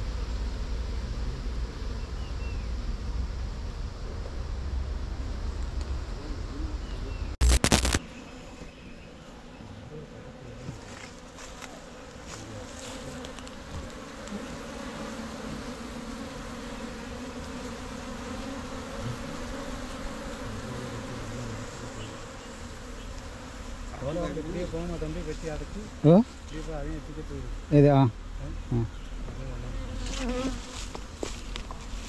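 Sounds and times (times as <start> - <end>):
bees buzzing: 6.1 - 32.0.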